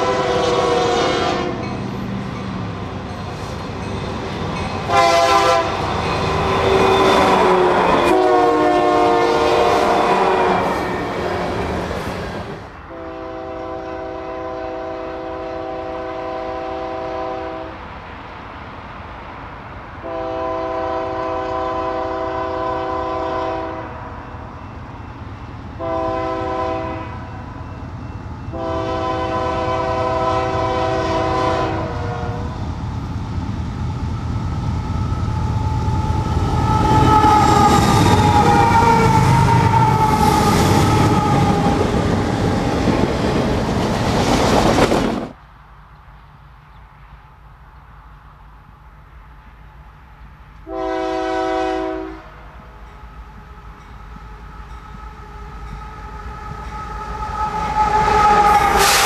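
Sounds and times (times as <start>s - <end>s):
train air horn blasts: 0.0s - 1.7s, 4.9s - 11.8s, 12.8s - 17.8s, 20.0s - 24.1s, 25.8s - 27.5s, 28.4s - 32.6s, 35.1s - 42.1s, 50.6s - 52.5s, 53.2s - 59.0s
locomotive diesel engines: 0.0s - 59.0s
steel wheels on rails: 1.4s - 8.4s, 32.6s - 45.4s.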